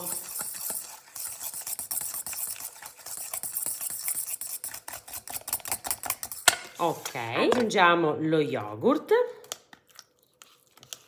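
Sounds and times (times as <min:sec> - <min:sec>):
whisk clicking against metal bowl: 0:00.0 - 0:06.6.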